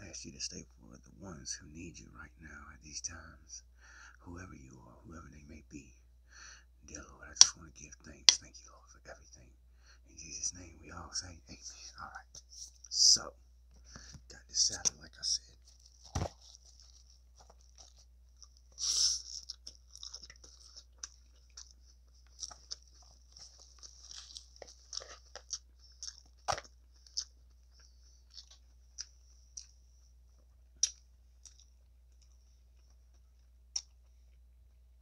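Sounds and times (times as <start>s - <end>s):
salad crackling and crunching: 14.0s - 29.8s, 30.8s - 33.9s.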